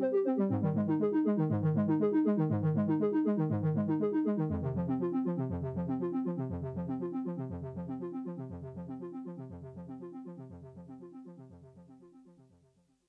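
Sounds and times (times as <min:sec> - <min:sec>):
synthesizer playing repeating notes: 0:00.0 - 0:05.3.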